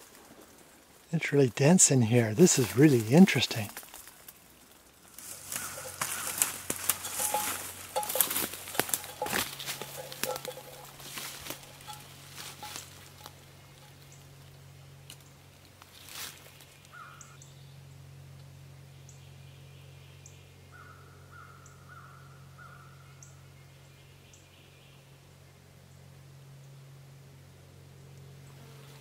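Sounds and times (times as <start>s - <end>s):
footsteps in dry leaves: 2.0s - 14.0s, 15.8s - 17.0s
birds calling: 5.1s - 14.3s, 16.4s - 17.8s.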